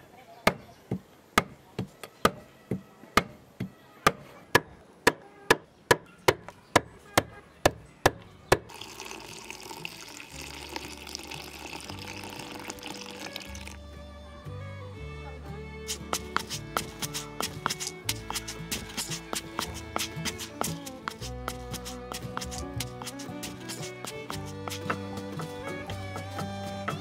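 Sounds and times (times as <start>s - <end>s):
cleaver chopping on wooden board: 0.5s - 1.6s, 2.2s - 8.6s, 15.9s - 27.0s
water pouring into a pan: 8.7s - 13.8s.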